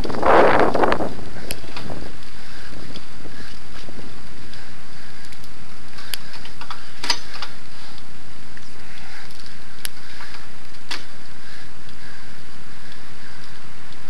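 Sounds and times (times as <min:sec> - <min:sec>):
bike rolling on asphalt: 0:00.0 - 0:14.0
clicks and knocks from bike: 0:05.3 - 0:08.0.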